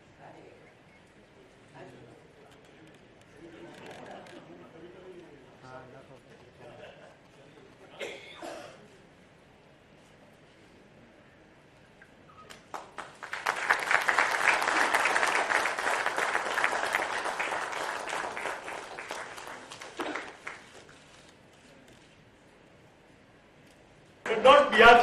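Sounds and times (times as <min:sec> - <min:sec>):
audience applauding: 0:12.7 - 0:21.0.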